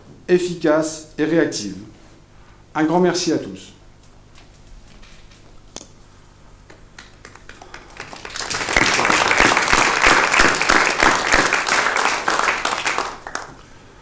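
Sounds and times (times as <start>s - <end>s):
group applause: 6.7s - 13.6s.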